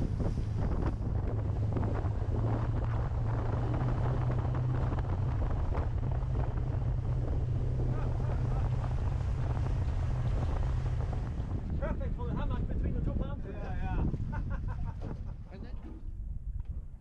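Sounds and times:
motorboat motor drone: 0:00.0 - 0:12.4
water splashing along hull: 0:00.0 - 0:15.4
wind buffeting microphone: 0:00.0 - 0:17.0.

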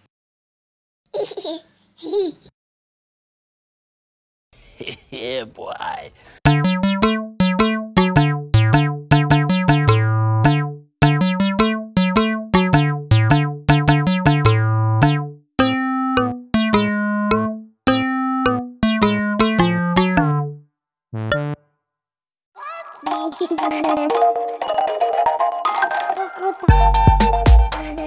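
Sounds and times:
low bass notes: 0:06.5 - 0:20.6, 0:21.2 - 0:21.6
melody of short plucked notes: 0:06.5 - 0:20.6, 0:21.2 - 0:21.6, 0:23.1 - 0:28.0.

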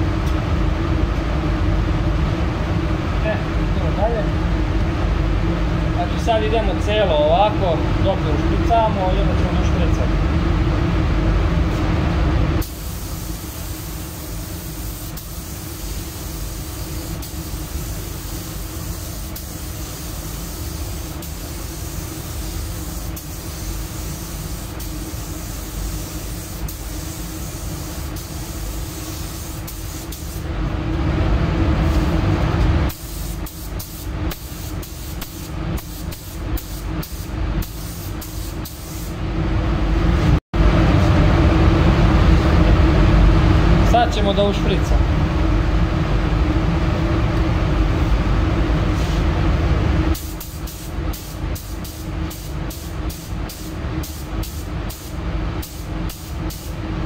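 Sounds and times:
paint spray gun hissing: 0:12.6 - 0:30.4, 0:32.9 - 0:39.2, 0:50.2 - 0:56.8.

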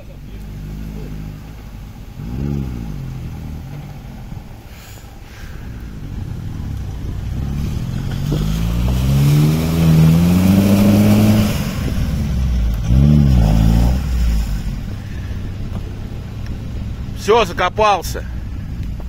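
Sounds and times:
engine revving hard: 0:02.2 - 0:03.6, 0:07.3 - 0:14.9.

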